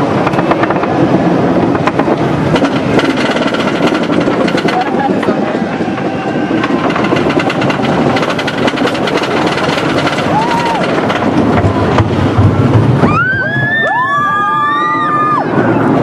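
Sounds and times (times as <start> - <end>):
roller coaster low rumble: 0.0 - 16.0
roller coaster train clacking: 0.0 - 16.0
riders screaming: 5.3 - 8.3, 10.0 - 11.2, 13.1 - 16.0.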